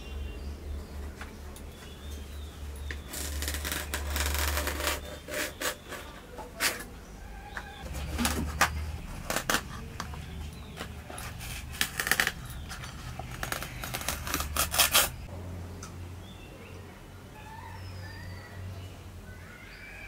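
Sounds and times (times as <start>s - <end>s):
leaves being sliced and torn: 13.2s - 15.3s.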